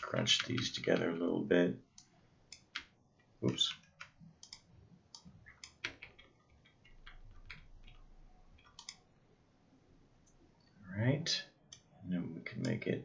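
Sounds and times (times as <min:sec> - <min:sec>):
faint computer mouse clicks: 0:03.5 - 0:06.0, 0:08.6 - 0:09.0.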